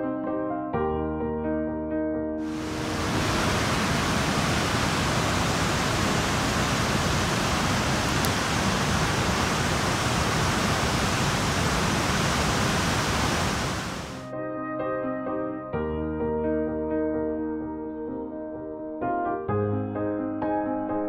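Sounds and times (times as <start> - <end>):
waterfall rushing: 2.4 - 14.2.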